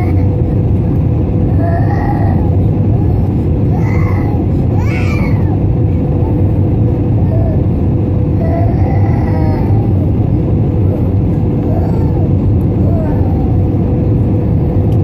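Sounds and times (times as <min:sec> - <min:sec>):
jet engine cabin rumble: 0:00.0 - 0:15.0
steady hum: 0:00.0 - 0:15.0.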